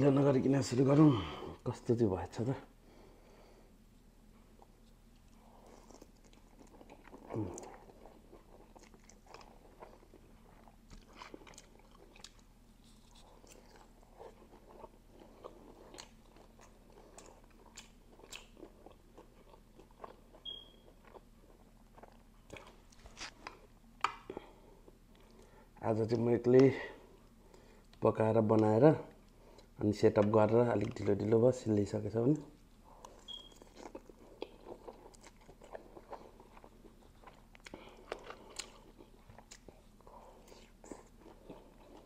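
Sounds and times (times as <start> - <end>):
wet chewing with mouth clicks: 4.5 - 25.6, 32.3 - 42.0.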